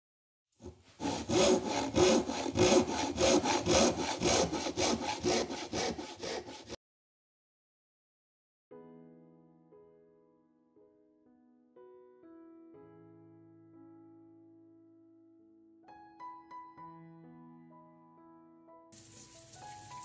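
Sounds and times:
hand saw cutting wood: 0.6 - 6.8.

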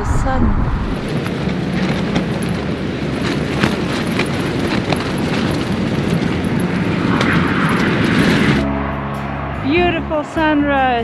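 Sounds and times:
wind gusting on microphone: 0.0 - 11.0.

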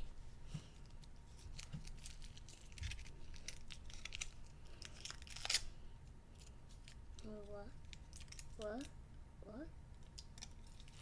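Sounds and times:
foil wrapper crinkling: 0.8 - 5.7, 7.8 - 8.7, 10.1 - 11.0.

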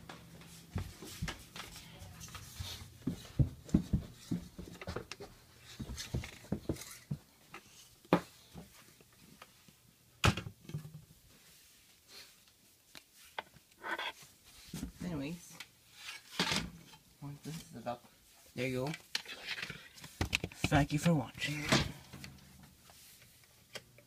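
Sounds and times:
footsteps going down stairs: 0.0 - 7.3.

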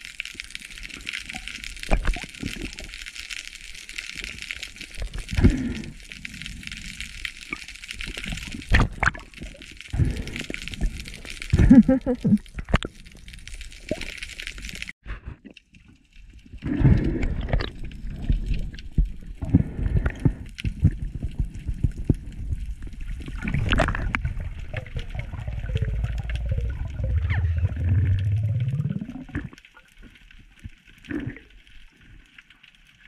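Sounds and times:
water rushing and gurgling: 16.7 - 32.2
low hum rising in pitch: 25.3 - 29.2.

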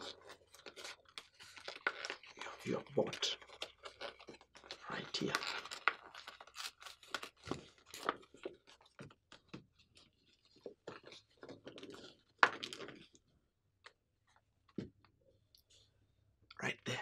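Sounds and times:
paper crinkling and rustling: 0.0 - 13.2.

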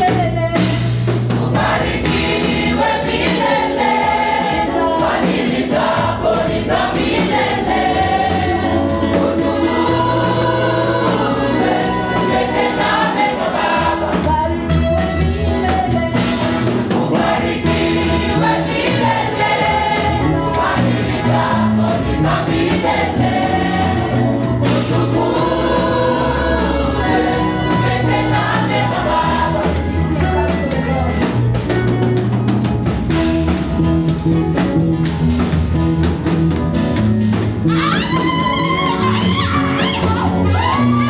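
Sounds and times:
bass guitar: 0.0 - 41.0
drums playing: 0.0 - 41.0
choir singing praise song: 1.2 - 14.6, 16.6 - 30.8, 37.8 - 41.0.

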